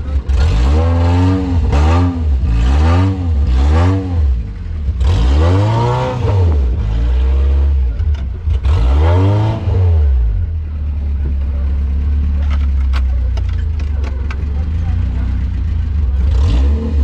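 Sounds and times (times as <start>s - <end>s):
engine revving: 0.0s - 17.0s.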